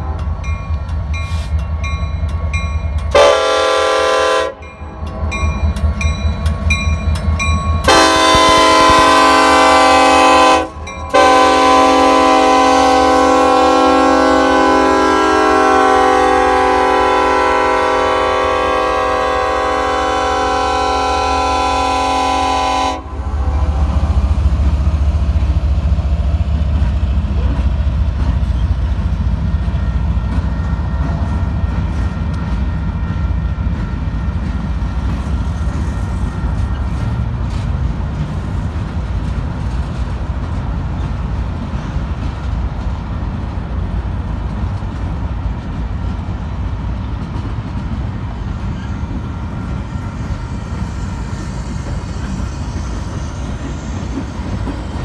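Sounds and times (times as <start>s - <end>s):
diesel locomotives rumbling: 0.0s - 55.0s
train air horn: 3.1s - 4.7s, 7.8s - 24.4s.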